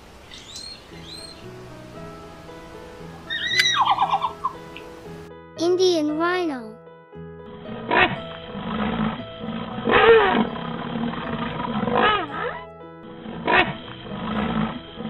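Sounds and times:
rhinoceros calling: 0:00.3 - 0:01.5, 0:03.3 - 0:04.9, 0:07.7 - 0:15.0
background music: 0:00.6 - 0:15.0.

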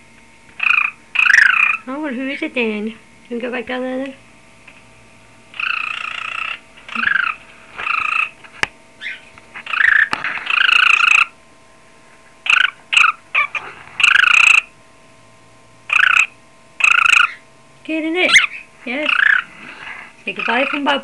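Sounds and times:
bird imitating ringing telephone: 0:00.6 - 0:01.9, 0:05.6 - 0:08.3, 0:09.0 - 0:11.3, 0:12.4 - 0:14.7, 0:15.9 - 0:17.4, 0:18.3 - 0:19.5.

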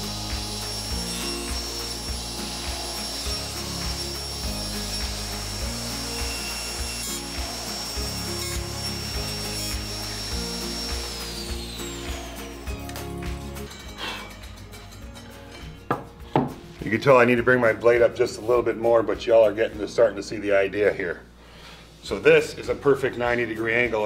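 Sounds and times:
saw blade spinning down: 0:00.0 - 0:13.4
table saw cutting wood: 0:00.0 - 0:14.5
background music: 0:00.0 - 0:24.0.

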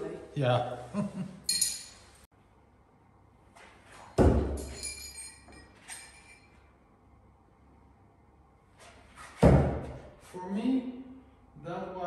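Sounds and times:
light metallic clink: 0:01.5 - 0:02.2, 0:04.6 - 0:06.5.

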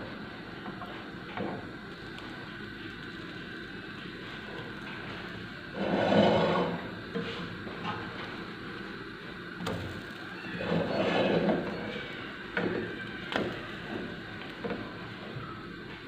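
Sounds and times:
pancakes sizzling in oil: 0:00.1 - 0:16.0
spatula scraping a pan: 0:05.7 - 0:07.4, 0:10.6 - 0:11.8.

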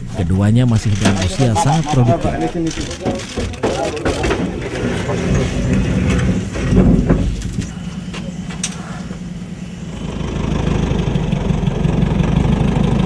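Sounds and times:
engine idling: 0:00.0 - 0:13.0
sharp clicks: 0:00.8 - 0:04.4.

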